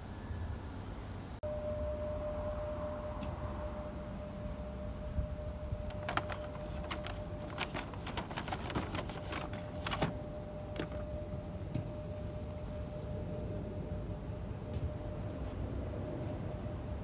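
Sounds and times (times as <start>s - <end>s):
paper bag rustling and crackling: 5.9s - 11.2s.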